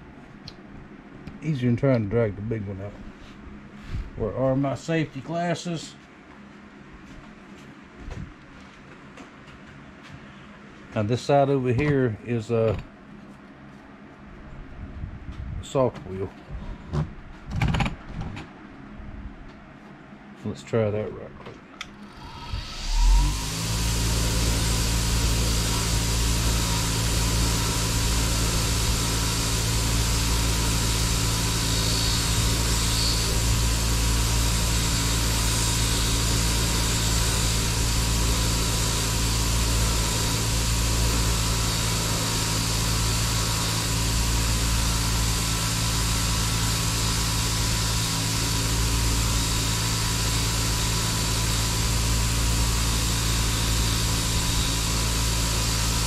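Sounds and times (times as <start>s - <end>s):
bench grinder wire wheel running: 22.0s - 56.0s
wooden handle brushed on wire wheel: 22.2s - 45.3s.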